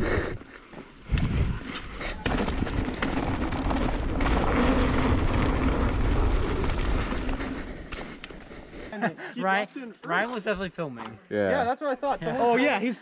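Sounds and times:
wind buffeting microphone: 1.0s - 8.1s
tyres rumbling on dirt: 1.8s - 8.9s.

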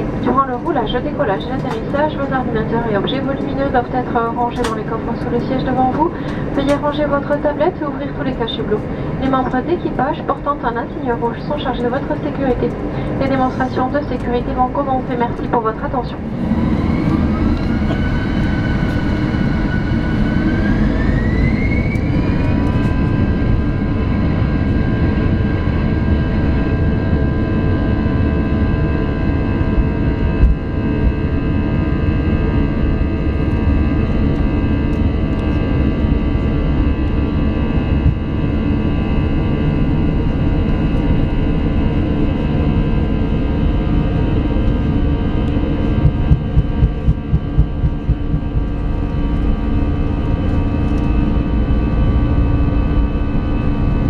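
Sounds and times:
jet engines spooling up: 16.2s - 23.9s, 45.3s - 49.7s.

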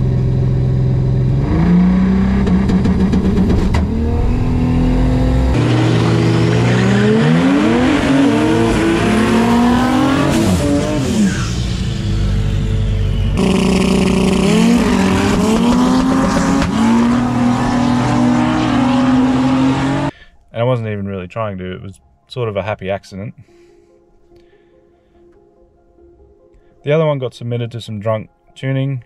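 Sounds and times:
car engine accelerating at full throttle: 0.0s - 20.1s.

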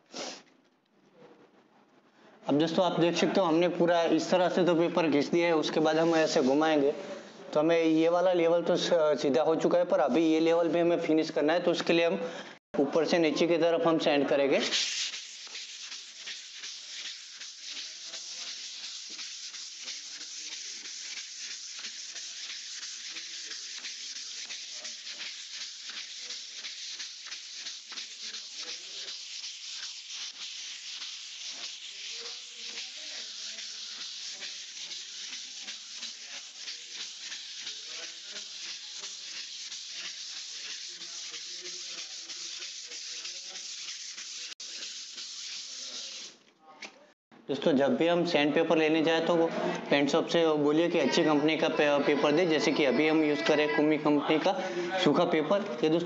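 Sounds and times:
sandpaper rubbing on wall putty: 14.6s - 46.4s.

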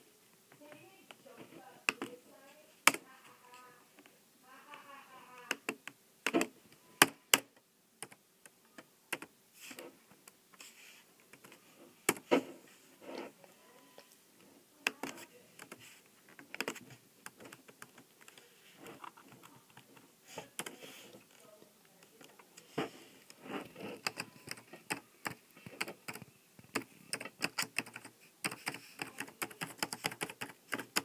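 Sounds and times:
laptop keyboard typing: 2.8s - 3.0s, 14.8s - 21.4s, 23.8s - 31.0s.

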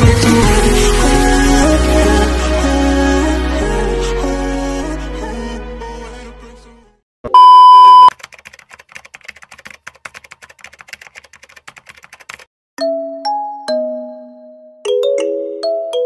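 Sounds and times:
loud steady beep: 7.3s - 8.1s
fast keyboard typing clicks: 8.1s - 12.5s.

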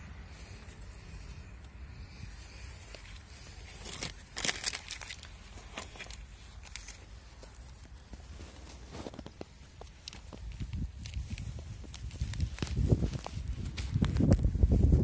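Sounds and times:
crackles: 0.3s - 14.8s
glove rustling on rubber hose: 0.3s - 15.0s.

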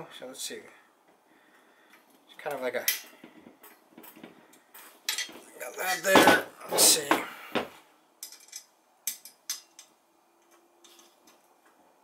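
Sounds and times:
metal parts clicking: 8.2s - 11.4s.

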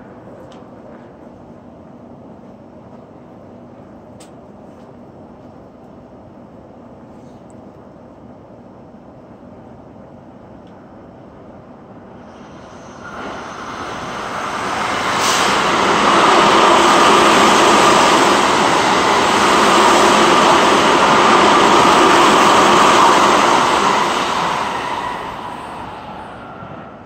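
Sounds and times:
train rushing past: 12.1s - 27.0s.

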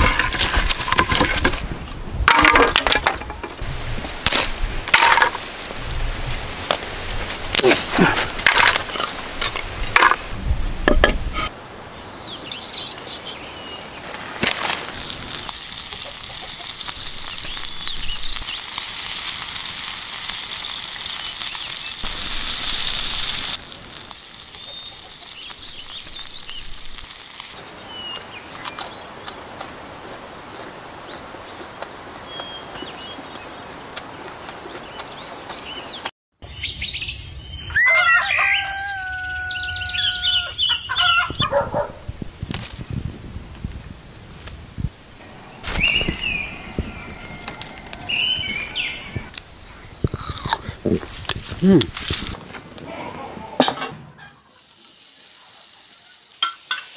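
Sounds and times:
dry sticks snapping: 4.2s - 5.3s
food sizzling in hot oil: 8.3s - 28.7s, 54.2s - 56.9s.

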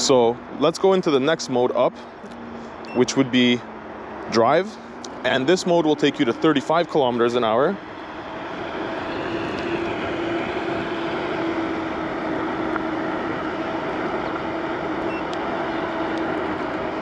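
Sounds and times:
electric scooter motor whine: 4.9s - 17.0s.

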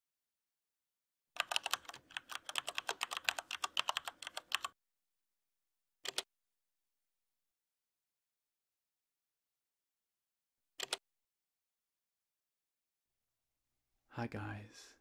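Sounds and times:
fast typing on keyboard: 1.4s - 4.8s.

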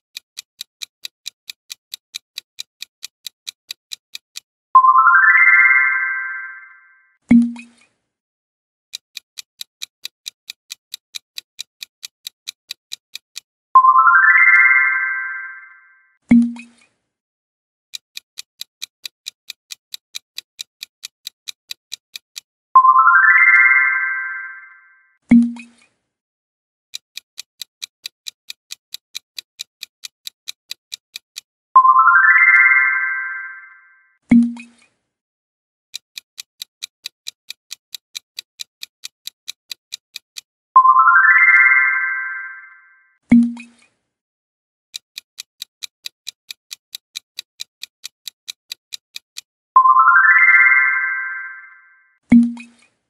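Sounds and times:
rising chime: 4.8s - 7.0s, 13.8s - 16.0s, 22.8s - 25.0s, 31.8s - 34.0s, 40.8s - 43.0s, 49.8s - 52.0s
countdown timer ticking: 4.8s - 7.7s, 9.4s - 16.7s, 18.2s - 25.7s, 27.2s - 34.7s, 36.2s - 43.7s, 45.2s - 52.7s.

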